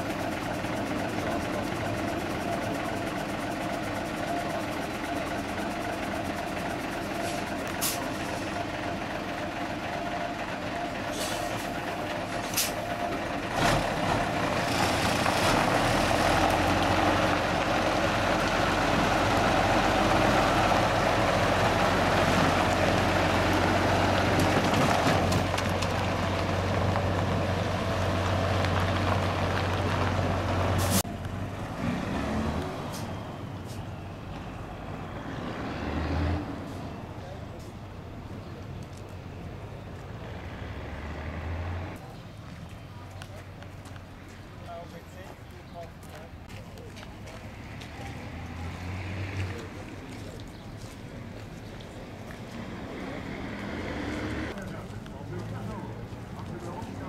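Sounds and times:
diesel truck engine idling: 0:00.0 - 0:14.7.

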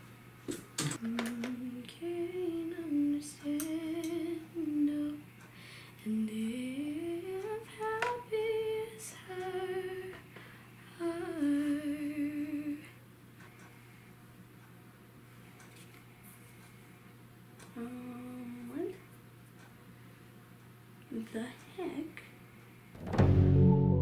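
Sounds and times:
woman humming: 0:17.7 - 0:19.0.

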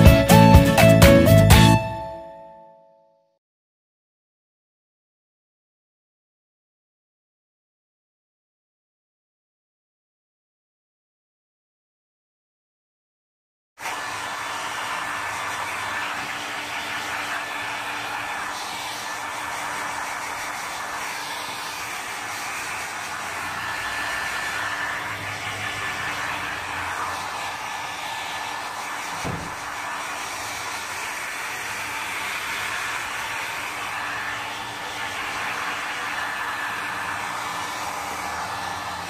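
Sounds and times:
blow dryer running: 0:13.8 - 0:39.0
brief thump: 0:29.2 - 0:29.6.

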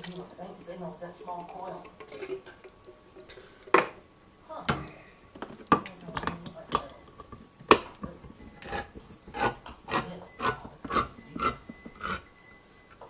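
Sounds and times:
can opener rasping strokes: 0:08.6 - 0:12.3.

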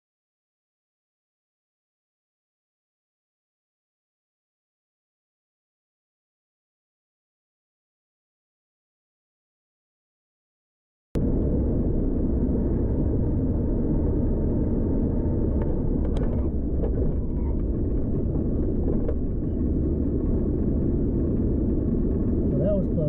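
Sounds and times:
car road and engine rumble: 0:11.2 - 0:23.0.

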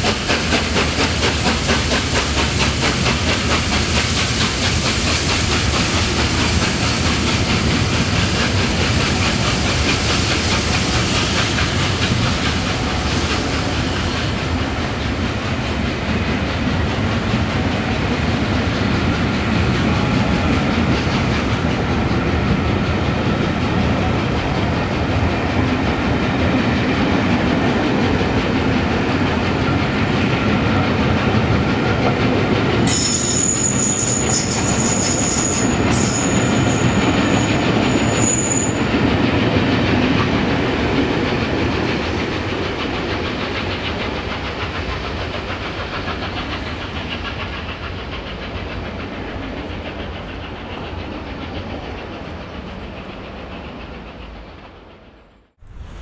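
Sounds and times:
steam train rolling past: 0:00.0 - 0:56.0
high-pitched squeal: 0:32.9 - 0:38.9.

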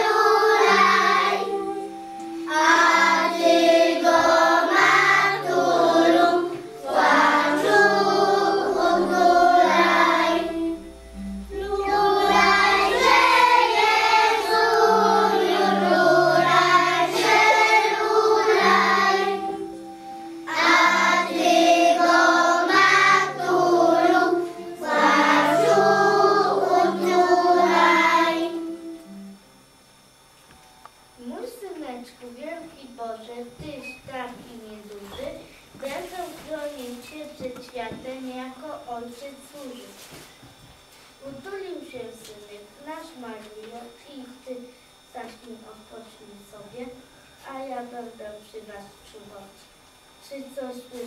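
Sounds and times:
children singing a carol: 0:00.0 - 0:10.9, 0:11.5 - 0:19.8, 0:20.4 - 0:29.0
instrumental accompaniment: 0:00.0 - 0:31.8.

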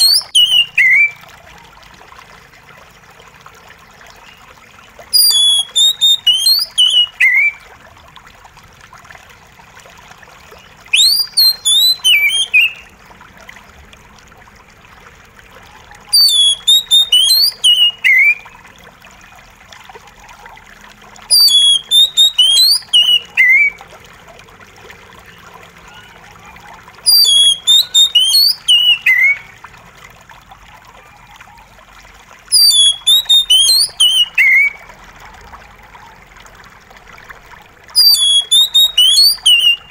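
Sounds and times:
bird singing high notes: 0:00.0 - 0:01.2, 0:05.1 - 0:07.6, 0:10.9 - 0:12.9, 0:16.1 - 0:18.5, 0:21.3 - 0:23.8, 0:27.1 - 0:29.5, 0:32.5 - 0:34.8, 0:38.0 - 0:39.9
running water trickling: 0:00.0 - 0:39.9.

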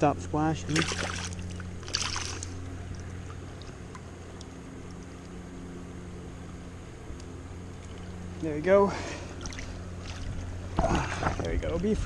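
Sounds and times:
low steady hum: 0:00.0 - 0:12.0
stream running: 0:00.0 - 0:12.0
fish splashing in water: 0:00.7 - 0:05.3, 0:08.9 - 0:11.5.

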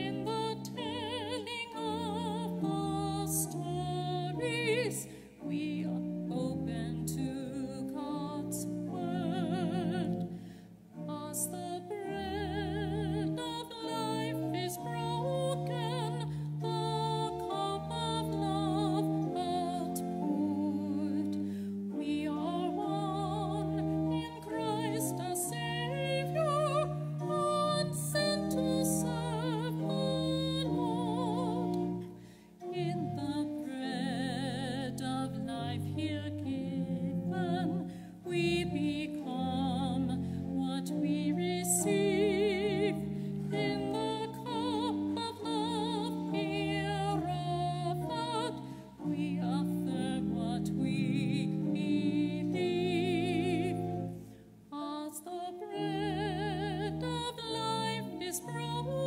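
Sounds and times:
held keyboard chords: 0:00.0 - 0:54.3
singer breathing: 0:05.0 - 0:05.4, 0:10.3 - 0:10.9, 0:21.4 - 0:21.8, 0:32.1 - 0:32.6, 0:37.9 - 0:38.2, 0:43.1 - 0:43.4, 0:48.6 - 0:49.0
solo voice singing hymn: 0:11.0 - 0:32.0.

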